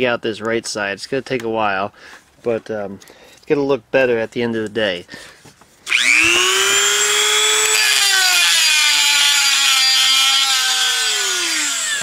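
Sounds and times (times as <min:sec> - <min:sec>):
rotary tool grinding metal: 0:05.9 - 0:12.0.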